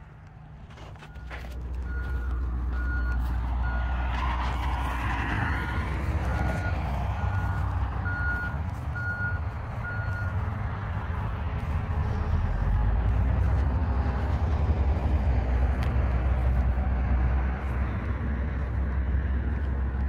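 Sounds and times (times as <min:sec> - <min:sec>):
heavy vehicle engine running: 0:00.0 - 0:20.0
reversing alarm beeping: 0:01.1 - 0:04.1, 0:05.2 - 0:10.6.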